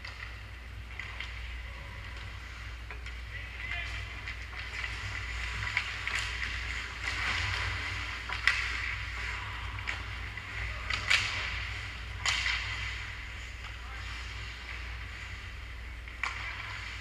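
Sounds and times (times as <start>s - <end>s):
hockey sticks and puck clacking: 0.0s - 17.0s
low steady hum: 0.0s - 17.0s
skate blades scraping on ice: 3.4s - 17.0s.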